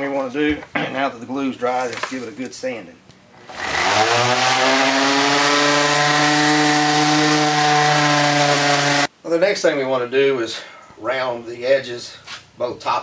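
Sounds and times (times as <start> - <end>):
random orbit sander sanding wood: 3.4 - 9.1.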